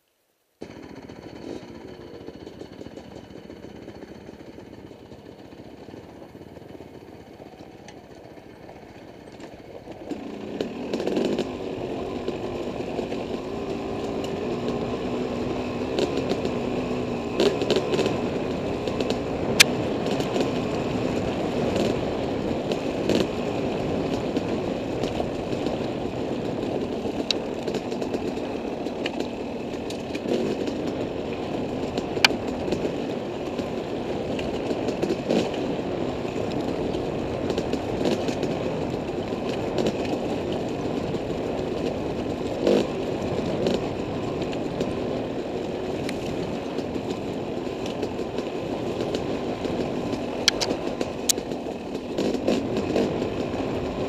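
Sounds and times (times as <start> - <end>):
dirt bike engine running: 0.6 - 54.0
sharp knocks and ticks: 47.8 - 53.5.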